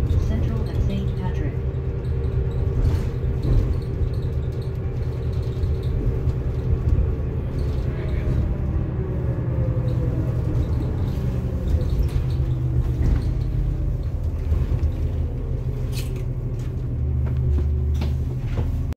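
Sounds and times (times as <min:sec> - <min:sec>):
sharp clicks and rattles: 0:00.0 - 0:08.4
bus drivetrain and road rumble: 0:00.0 - 0:19.0.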